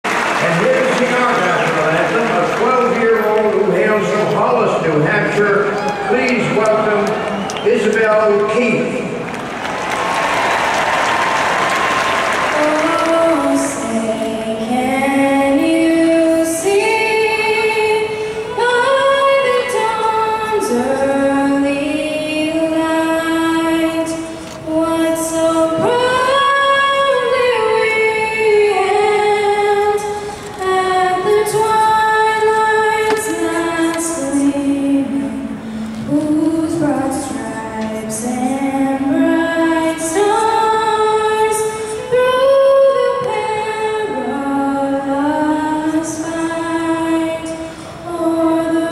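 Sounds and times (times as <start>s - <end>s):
crowd applause: 0.0s - 4.4s, 5.4s - 13.9s
girl singing into a microphone: 12.5s - 48.9s.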